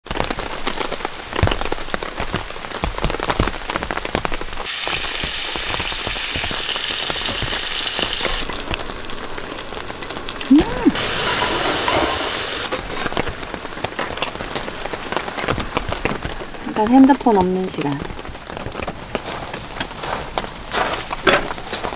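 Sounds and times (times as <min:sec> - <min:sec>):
rain pattering on a tarp: 0:00.0 - 0:21.9
meat sizzling in a frying pan: 0:04.6 - 0:13.4.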